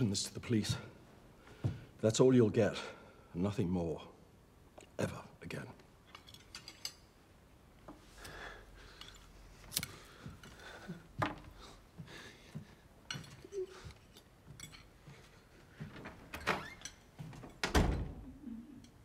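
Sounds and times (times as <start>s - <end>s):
cutlery and china clinking: 6.0s - 7.2s, 13.1s - 15.4s.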